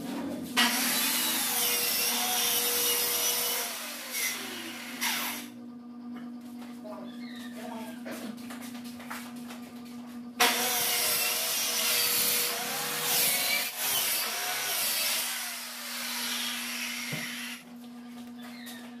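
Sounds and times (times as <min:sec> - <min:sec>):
circular saw cutting wood: 0:00.6 - 0:05.5, 0:10.4 - 0:17.6.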